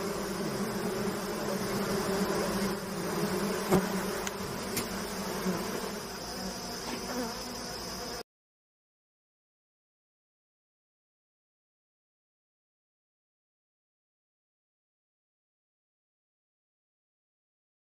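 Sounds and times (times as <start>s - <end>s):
honeybees buzzing: 0.0s - 8.2s.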